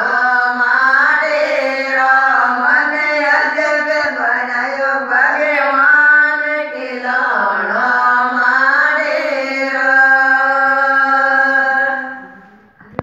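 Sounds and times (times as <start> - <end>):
women singing folk song: 0.0 - 12.7.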